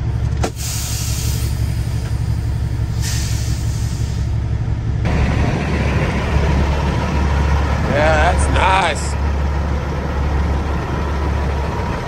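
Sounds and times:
diesel truck engine droning: 0:00.0 - 0:12.0
air hiss: 0:02.9 - 0:04.3.

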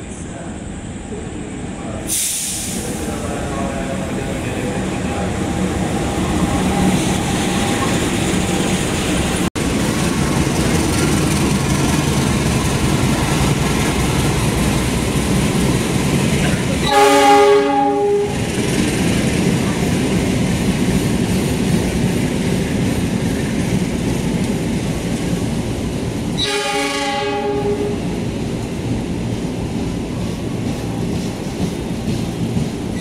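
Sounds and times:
train passing with engine hum: 0:00.0 - 0:33.0
train horn blast: 0:16.8 - 0:18.5, 0:26.4 - 0:28.0.

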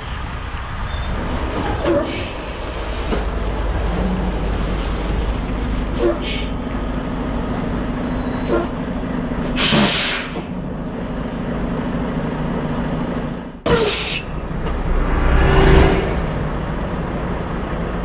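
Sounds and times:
diesel truck engine running: 0:00.0 - 0:18.0
air brake hisses: 0:09.6 - 0:10.4, 0:13.7 - 0:14.3.

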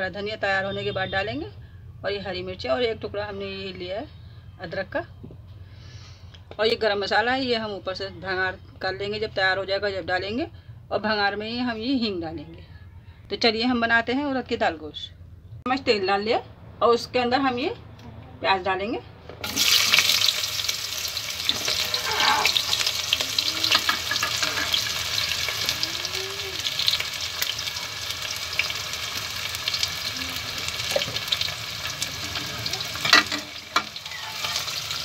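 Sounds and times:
onions sizzling in hot oil: 0:19.4 - 0:35.0
steel ladle stirring: 0:21.5 - 0:25.1.

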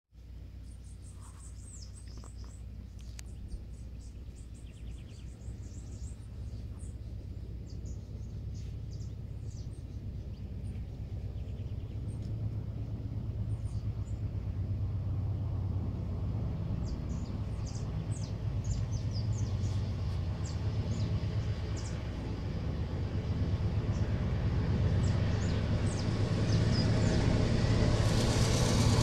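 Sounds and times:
small birds chirping: 0:00.5 - 0:14.5, 0:16.7 - 0:22.4, 0:24.9 - 0:27.5
low rumble: 0:01.6 - 0:29.0.

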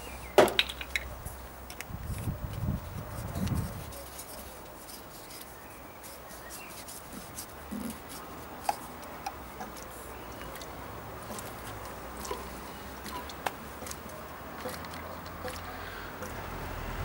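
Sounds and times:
plastic bottle clicks and rubs: 0:06.5 - 0:10.7.

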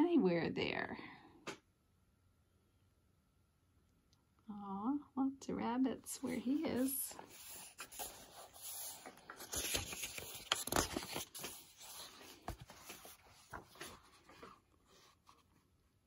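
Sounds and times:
book pages rustling: 0:06.2 - 0:15.8.

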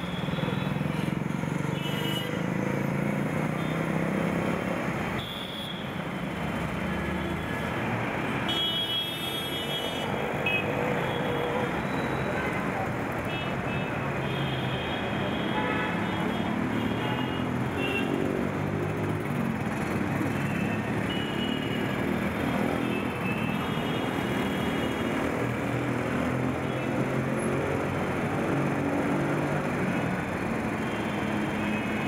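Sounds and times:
road traffic din: 0:15.0 - 0:32.0.

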